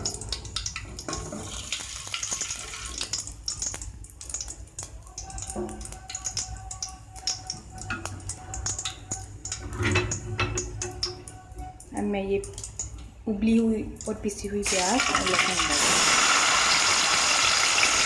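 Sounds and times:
seeds sizzling in hot oil: 0.3s - 6.6s, 14.6s - 18.0s.

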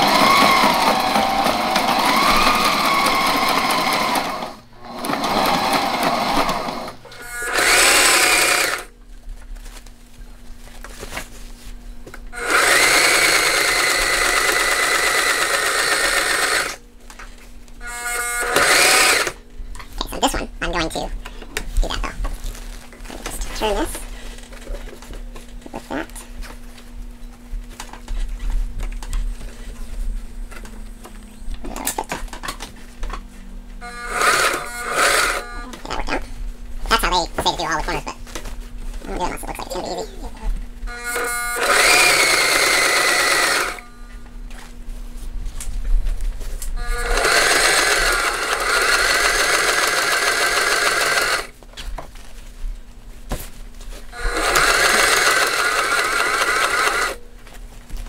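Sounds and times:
sewing machine stitching: 0.0s - 8.9s, 12.4s - 16.8s, 18.2s - 19.4s, 34.1s - 35.6s, 41.1s - 43.8s, 46.9s - 51.5s, 54.2s - 57.2s
loud steady buzzing: 0.0s - 9.0s, 12.3s - 16.9s, 17.8s - 19.6s, 33.8s - 38.1s, 39.0s - 44.7s, 46.6s - 51.5s, 54.0s - 57.3s.

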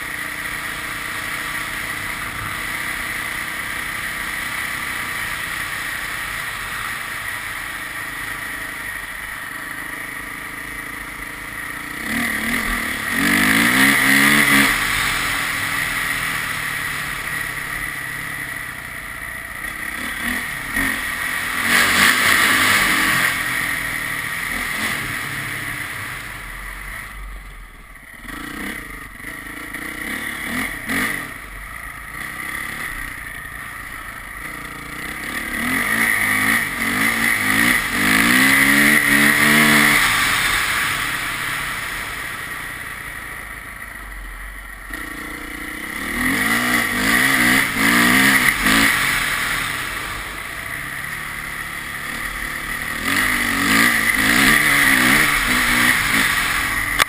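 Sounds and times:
vehicle engine accelerating: 0.0s - 27.5s, 28.1s - 57.0s
road and wind noise: 0.0s - 57.0s.

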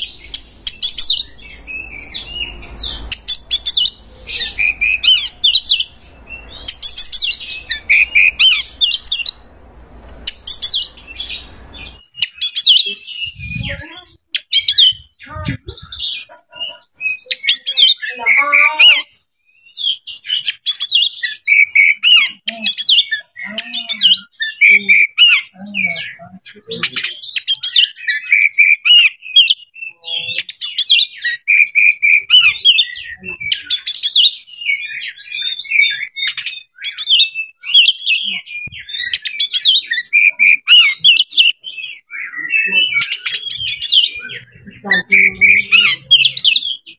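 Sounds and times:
bird singing whistles and trills: 0.0s - 9.4s, 18.8s - 26.0s, 26.8s - 46.9s.

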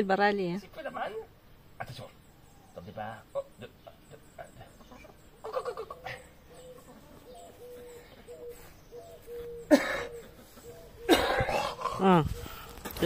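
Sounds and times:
chickens clucking: 3.2s - 12.7s.

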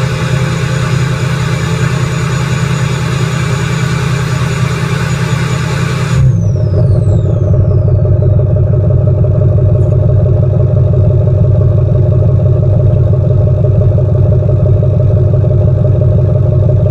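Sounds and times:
diesel engine idling: 0.0s - 16.9s.

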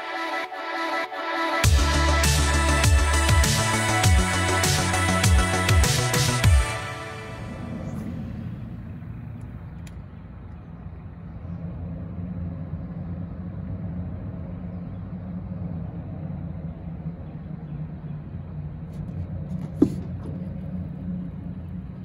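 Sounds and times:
boat motor humming: 1.6s - 22.0s
faint click: 9.4s - 10.0s.

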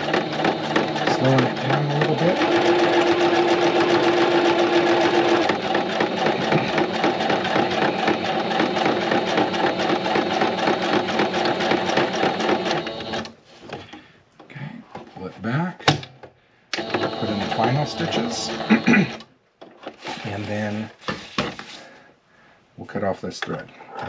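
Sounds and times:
sewing machine stitching: 0.0s - 13.4s, 16.7s - 19.2s
faint handling sounds: 19.6s - 22.2s.

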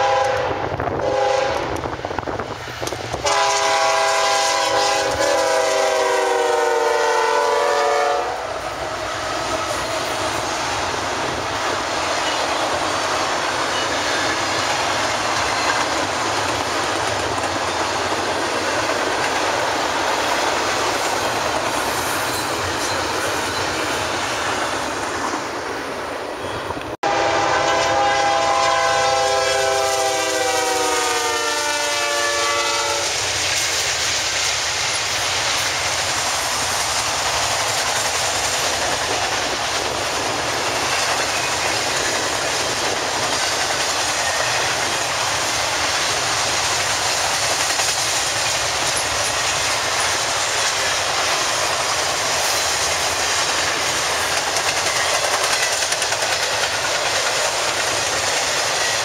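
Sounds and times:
locomotive air horn: 0.0s - 1.8s, 3.2s - 8.6s, 27.0s - 33.2s
train rolling and clacking: 0.0s - 59.0s.

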